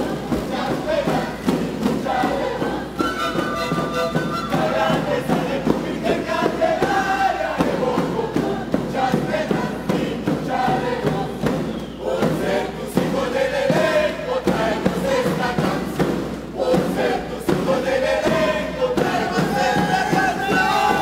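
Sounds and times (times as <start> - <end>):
steady drum beats: 0.0 - 21.0
panpipes ensemble playing melody: 2.9 - 5.4.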